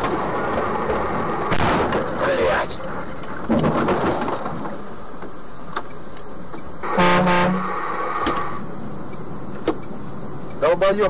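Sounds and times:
road and engine noise: 0.0 - 11.0
vehicle horn: 6.8 - 7.8.

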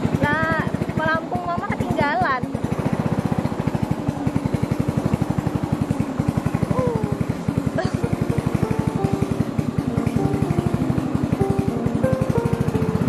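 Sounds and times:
motorboat engine put-put: 0.0 - 13.0.

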